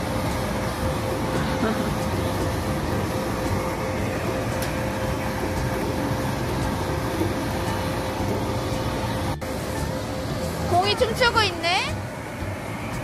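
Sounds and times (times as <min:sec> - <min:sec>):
blower rushing air with hum: 0:00.0 - 0:13.0.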